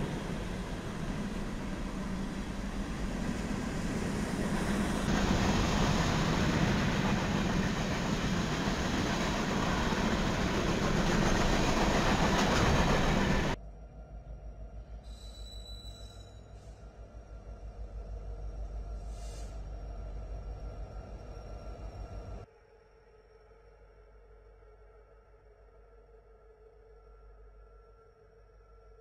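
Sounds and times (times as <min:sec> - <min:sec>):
train wheels rumbling on rail: 0:00.0 - 0:13.6.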